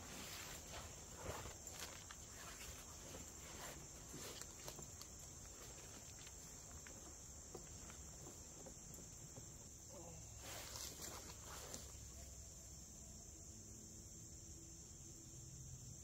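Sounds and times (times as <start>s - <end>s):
soft scuffs: 10.4s - 12.0s.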